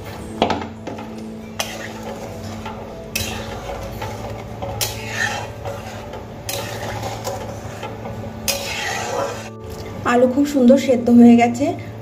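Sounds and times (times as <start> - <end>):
curry boiling: 0.0 - 9.8
spatula scraping metal pan: 0.9 - 9.6.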